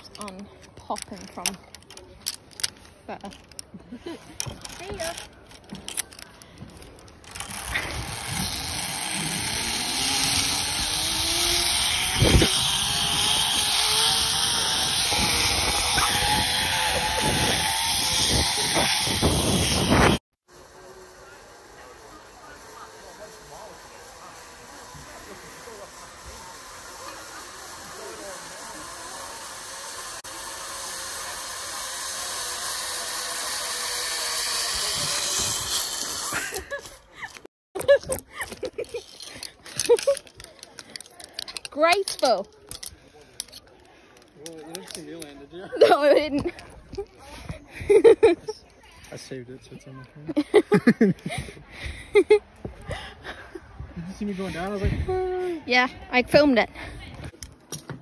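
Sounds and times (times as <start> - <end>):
zip-line trolley whine on cable: 1.2 - 43.6
wind rushing on microphone: 15.2 - 20.2.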